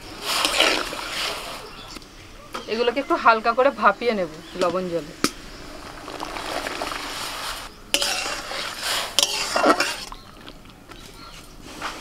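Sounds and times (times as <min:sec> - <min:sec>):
metal spatula scraping wok: 0:00.0 - 0:01.6, 0:05.3 - 0:10.2.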